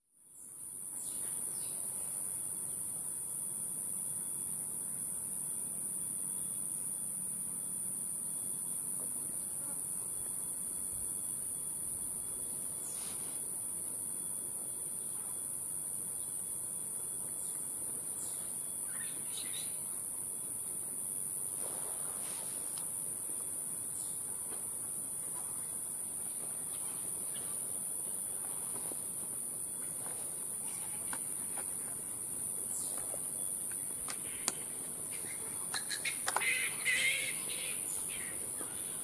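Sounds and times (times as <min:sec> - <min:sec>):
high-pitched insect drone: 0:32.7 - 0:39.0.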